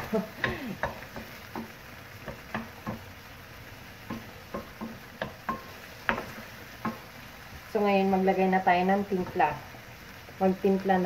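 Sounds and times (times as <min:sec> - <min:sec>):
faint sizzle of food frying: 0:00.0 - 0:11.0
wooden spatula scraping frying pan: 0:04.0 - 0:07.8.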